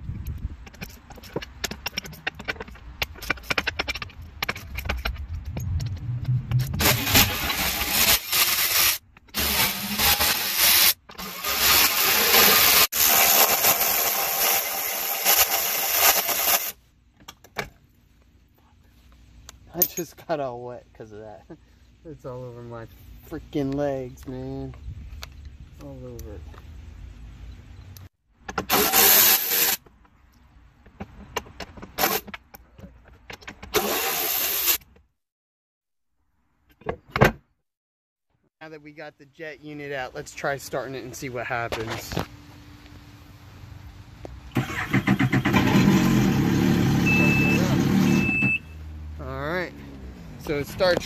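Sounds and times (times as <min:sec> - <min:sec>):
tool and bolts clicking: 0:00.6 - 0:05.9
electric ratchet whirring: 0:06.5 - 0:16.8, 0:28.7 - 0:29.8.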